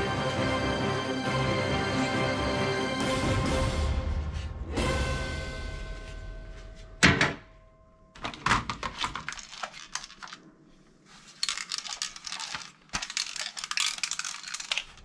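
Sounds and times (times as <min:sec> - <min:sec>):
plastic toy guns clattering: 0:08.2 - 0:10.4, 0:11.4 - 0:15.0.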